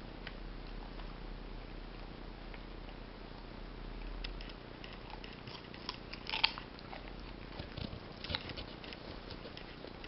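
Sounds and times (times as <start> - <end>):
puppy crunching carrot: 4.0 - 10.0.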